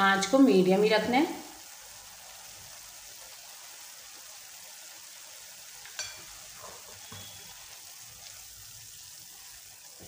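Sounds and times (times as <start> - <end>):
faint sizzling hiss in pan: 0.0 - 10.0
utensil striking pan: 5.8 - 7.6.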